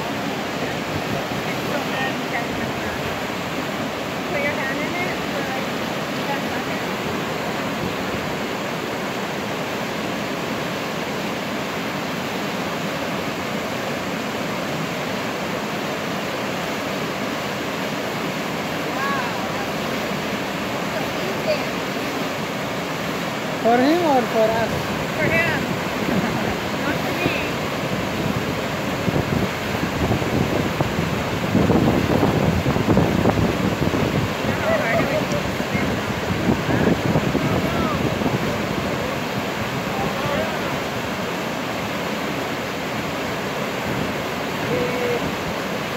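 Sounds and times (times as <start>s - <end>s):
wind buffeting microphone: 0.0s - 9.0s, 19.0s - 45.9s
river rapid rushing: 0.0s - 45.9s.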